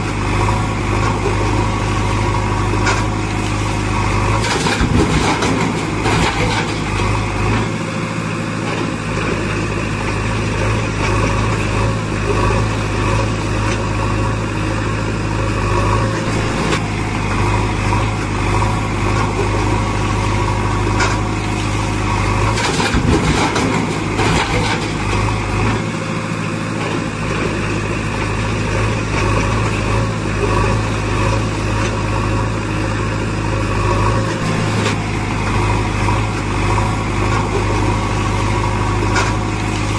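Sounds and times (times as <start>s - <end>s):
diesel engine running: 0.0s - 39.9s
engine clatter: 0.0s - 39.9s.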